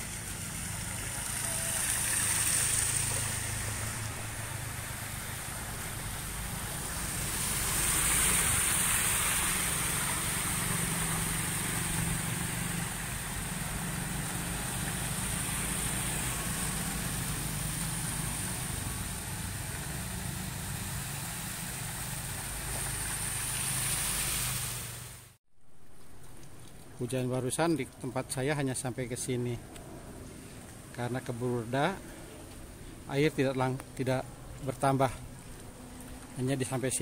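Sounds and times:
small engines running: 0.0s - 24.9s
tyres splashing through water: 0.0s - 28.4s, 29.9s - 37.0s.

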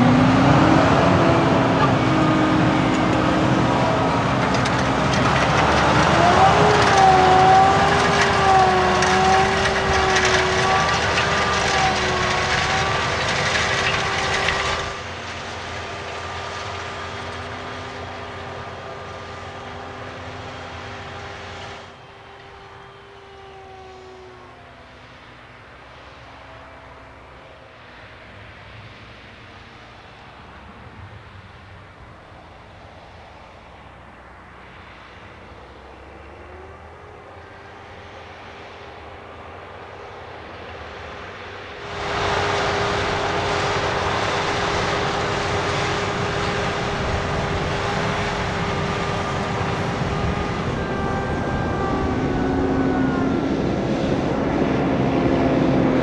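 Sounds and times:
tractor diesel engine droning: 0.0s - 56.0s.

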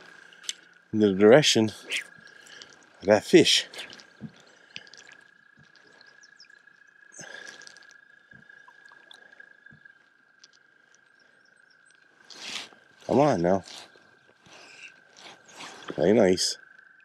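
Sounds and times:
fly line swish: 12.3s - 13.9s.

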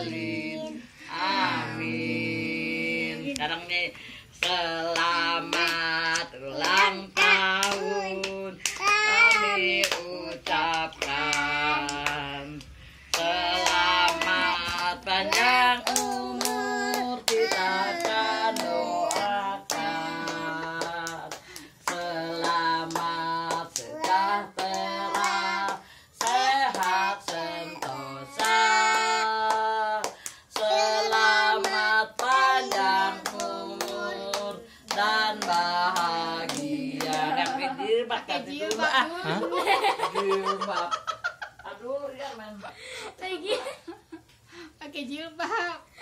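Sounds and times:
people singing birthday song: 0.0s - 41.9s
handclapping: 4.4s - 30.7s, 31.6s - 37.7s.

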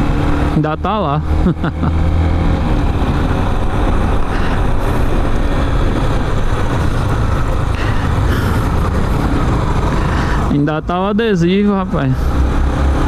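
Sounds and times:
motorcycle engine running: 0.0s - 13.0s
wind rushing over microphone: 1.2s - 10.6s.

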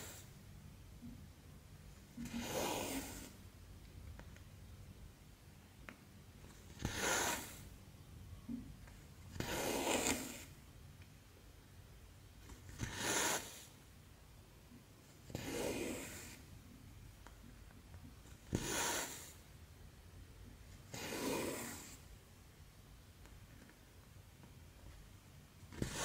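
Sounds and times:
thread rasping through fabric: 2.1s - 3.4s, 8.5s - 10.6s.

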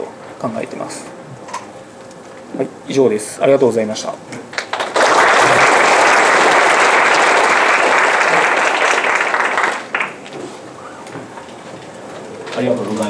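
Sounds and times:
audience clapping: 4.5s - 10.8s.

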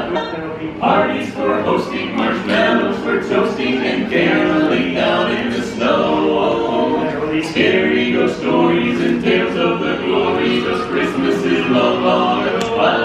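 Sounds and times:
men singing a cappella harmony: 0.0s - 13.0s.

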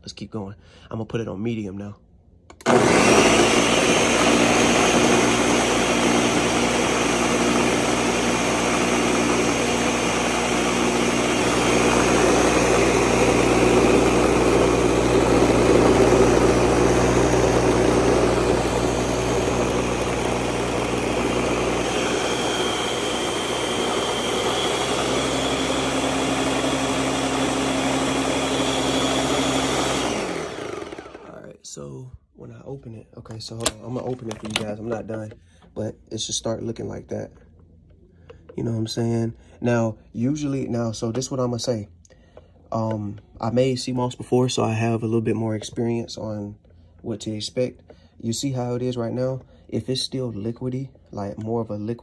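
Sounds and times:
blender motor whirring: 2.5s - 31.5s.

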